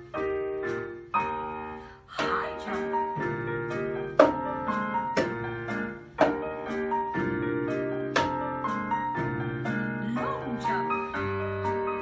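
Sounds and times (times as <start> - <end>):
ragtime piano: 0.0 - 12.0
hand claps: 8.1 - 8.4.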